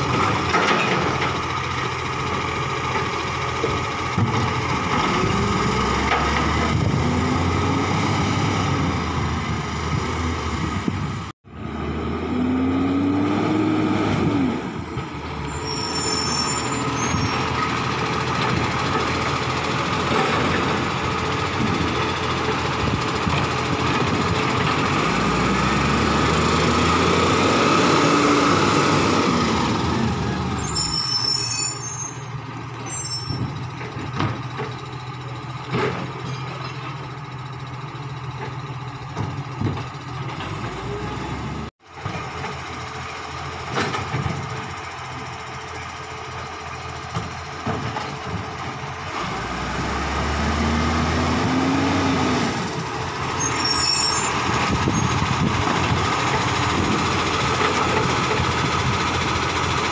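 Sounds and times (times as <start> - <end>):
garbage truck engine running: 14.5 - 30.8, 33.4 - 59.9
high squeals: 15.4 - 17.6, 30.3 - 33.6, 53.1 - 55.4.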